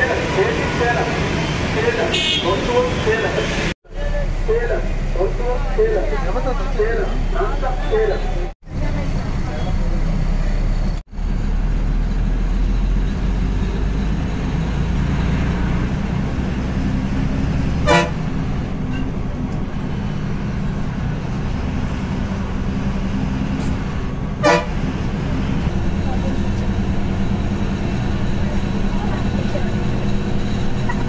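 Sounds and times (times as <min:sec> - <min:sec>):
bus engine and road drone: 0:00.0 - 0:31.0
short horn toots: 0:17.8 - 0:18.2, 0:24.4 - 0:24.8.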